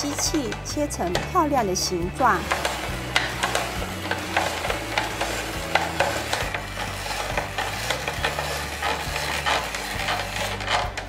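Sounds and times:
spiralizer crunching radishes: 0.0 - 11.0.

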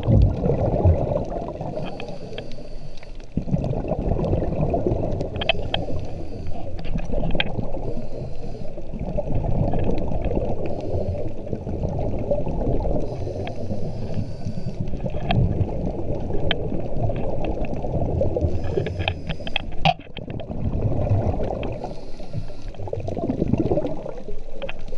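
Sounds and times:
bubbling rumble of exhaled air: 0.0 - 24.9
hissing regulator inhalations: 1.7 - 3.3, 5.4 - 6.8, 7.8 - 8.9, 10.6 - 11.4, 13.0 - 14.9, 18.4 - 19.8, 21.7 - 22.8.

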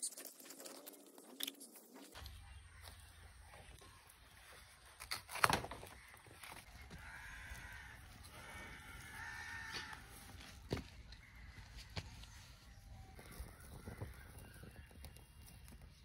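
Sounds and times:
farm animal calling: 5.9 - 14.6.

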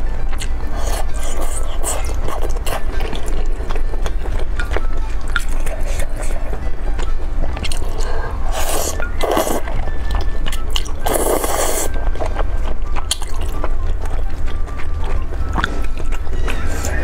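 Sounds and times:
background music: 0.0 - 17.0
wet chewing: 0.0 - 17.0
noodles being slurped: 10.7 - 12.0.

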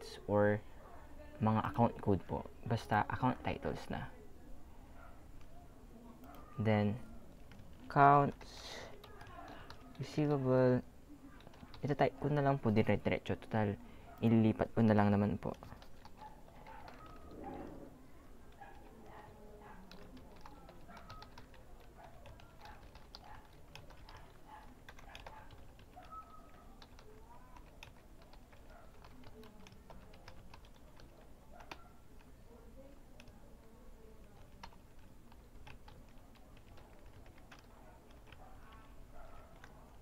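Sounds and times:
keyboard typing: 6.2 - 10.4, 11.3 - 13.6, 14.2 - 17.9, 18.5 - 40.0.

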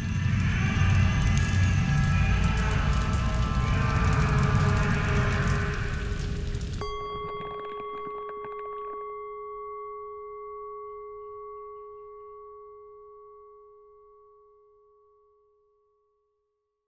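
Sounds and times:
struck bell-like tone: 6.8 - 16.1.

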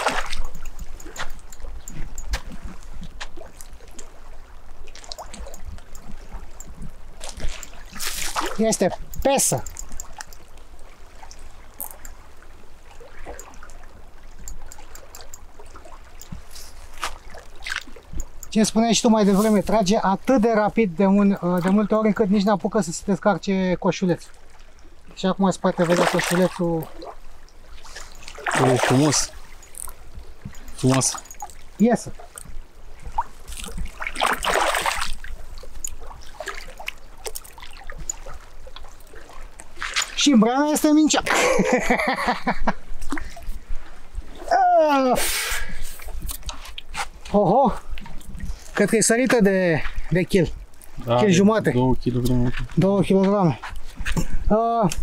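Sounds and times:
river water lapping: 0.0 - 55.0
small ticks: 0.4 - 4.2, 4.9 - 7.8, 9.0 - 12.3, 13.2 - 18.8, 29.5 - 31.6, 35.6 - 40.1.

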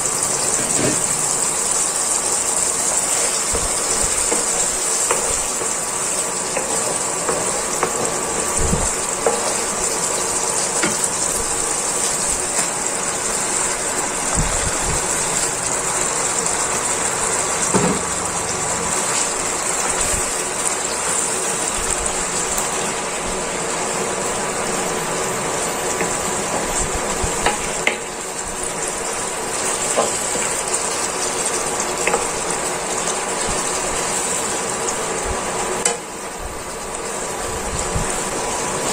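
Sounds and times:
fish sizzling in frying pan: 0.0 - 38.9
wooden spatula tapping and scraping: 3.2 - 5.8, 6.5 - 8.6.

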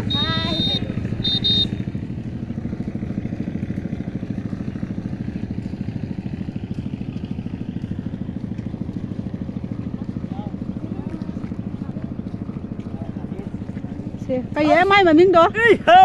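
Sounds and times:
small engine idling: 0.0 - 16.0.

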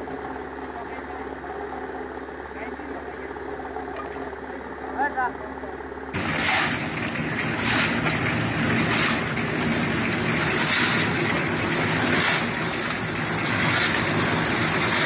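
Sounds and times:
concrete mixer engine humming: 5.6 - 15.0
gravel pouring into drum: 6.2 - 15.0.

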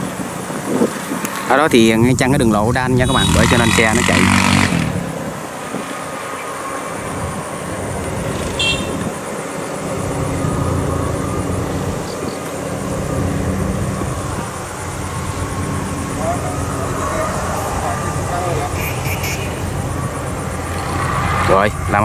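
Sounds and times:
combine harvester diesel engine: 1.8 - 5.5, 6.8 - 22.0.

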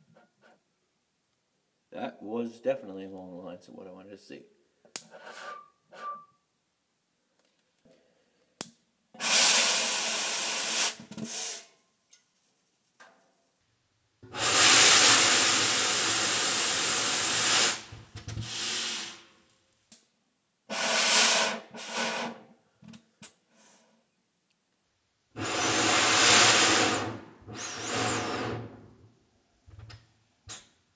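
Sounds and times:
fuel vapour igniting whoosh: 9.2 - 11.6, 14.4 - 17.9, 25.4 - 28.8.

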